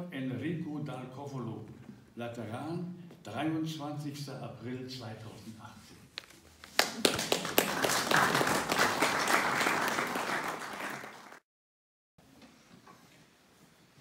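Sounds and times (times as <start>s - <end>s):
audience clapping: 6.6s - 11.4s.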